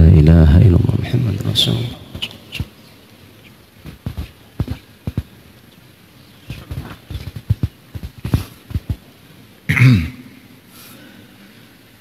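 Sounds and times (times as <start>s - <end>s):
microphone handling knocks: 3.8s - 5.3s, 6.5s - 9.0s
person coughing into microphone: 9.7s - 10.3s.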